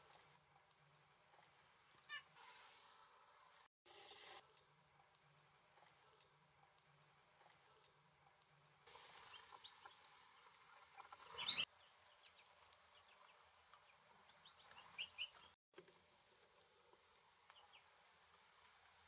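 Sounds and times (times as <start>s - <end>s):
songbirds chipping and calling: 9.1s - 15.6s.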